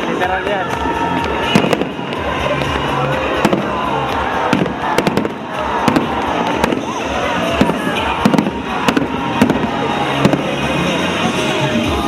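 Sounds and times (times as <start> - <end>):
crowd voices: 0.0 - 12.0
fireworks bursting: 0.0 - 12.0
music: 0.0 - 12.0.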